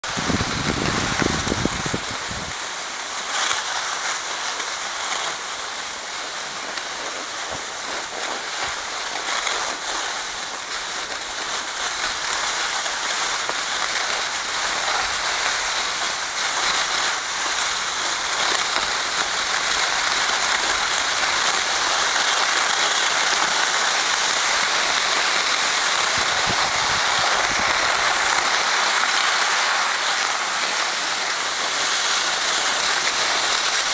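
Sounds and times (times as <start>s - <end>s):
wind rumble on microphone: 0.0s - 2.6s, 26.0s - 28.3s
skis scraping over snow: 0.0s - 33.9s.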